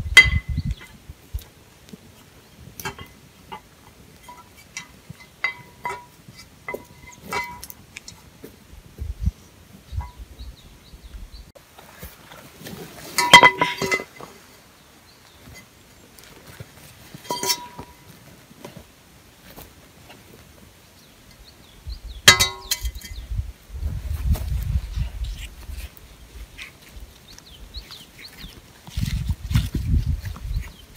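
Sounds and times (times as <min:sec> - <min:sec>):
metal cookware clinking: 0:04.2 - 0:07.7, 0:13.2 - 0:14.2, 0:17.3 - 0:18.0, 0:22.3 - 0:23.2.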